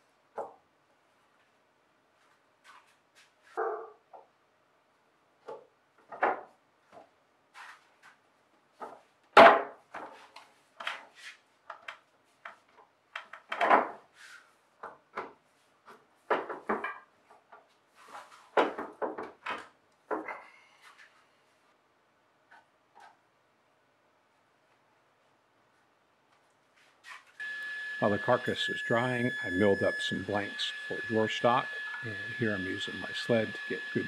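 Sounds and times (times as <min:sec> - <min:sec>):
wooden knocks and clunks: 0:05.4 - 0:06.5, 0:13.2 - 0:14.1, 0:14.8 - 0:17.7, 0:18.5 - 0:20.4.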